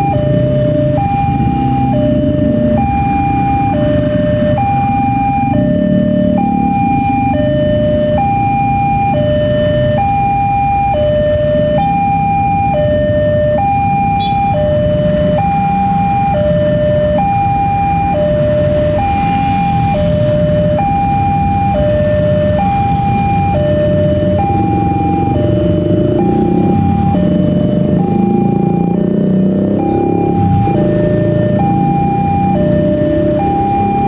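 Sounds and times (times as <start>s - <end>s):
two-tone crossing alarm: 0.0s - 34.0s
motorcycle engines idling: 18.2s - 34.0s.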